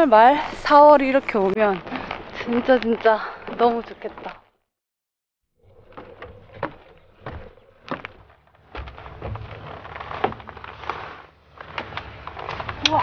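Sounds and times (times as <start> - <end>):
boot footsteps on wooden boardwalk: 5.8 - 11.2.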